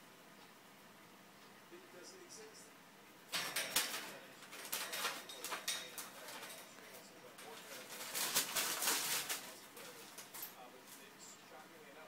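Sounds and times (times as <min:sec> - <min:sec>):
parrot crinkling paper pages: 0:03.3 - 0:11.4.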